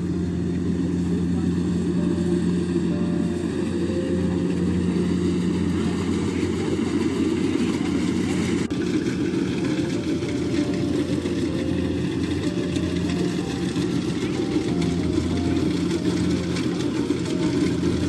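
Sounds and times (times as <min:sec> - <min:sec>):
combine harvester running: 0:00.0 - 0:18.0.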